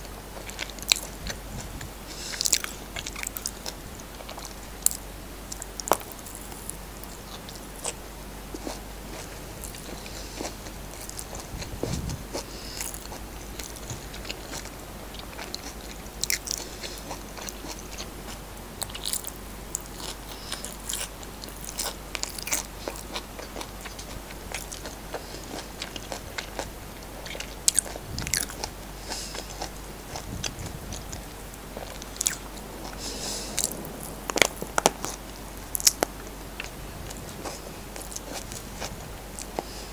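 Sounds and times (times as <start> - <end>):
person chewing food: 0.0 - 39.9
crisp crunches: 0.4 - 39.9
soft low thumps: 1.0 - 3.1, 8.4 - 12.5, 29.8 - 33.0.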